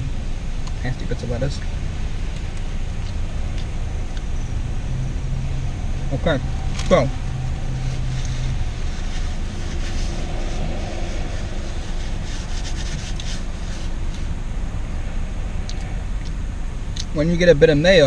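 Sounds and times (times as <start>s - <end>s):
car engine idling: 0.0s - 18.0s
rubbing and ticking noises: 5.7s - 14.3s.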